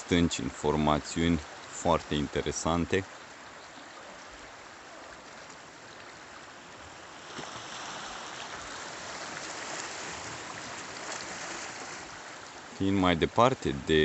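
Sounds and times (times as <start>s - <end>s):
sea water lapping on rocks: 5.1s - 12.8s.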